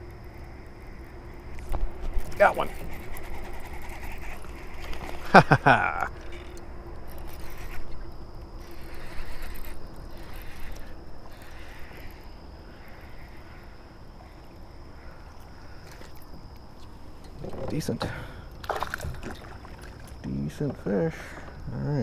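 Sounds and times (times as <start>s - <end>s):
fishing reel being cranked: 2.2s - 5.2s, 5.9s - 8.0s, 8.6s - 13.4s.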